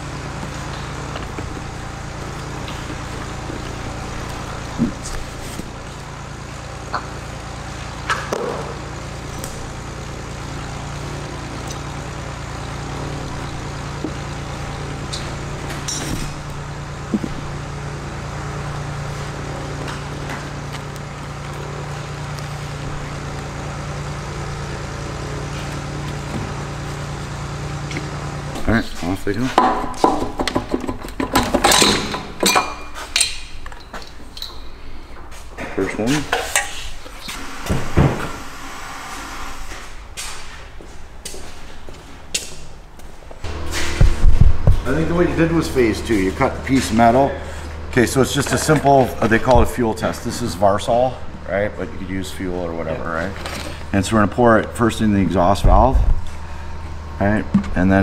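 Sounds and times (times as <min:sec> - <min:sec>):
steady low hum: 0:00.0 - 0:58.0
metal tools clinking: 0:30.8 - 0:34.7.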